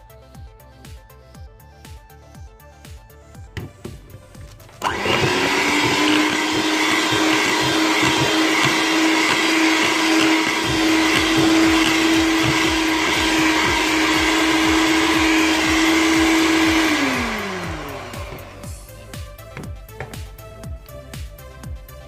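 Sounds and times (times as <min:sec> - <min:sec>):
electric hand mixer whipping cream: 0:03.6 - 0:20.2.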